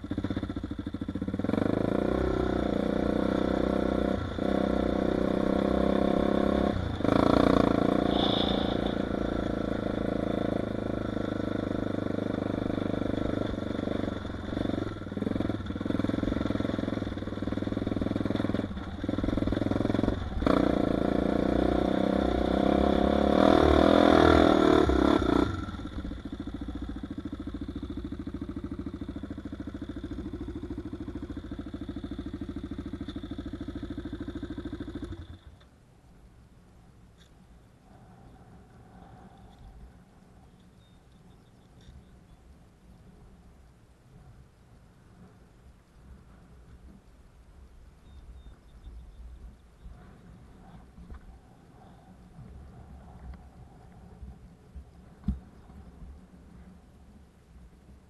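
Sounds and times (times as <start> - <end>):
atv engine revving: 0.0 - 35.6.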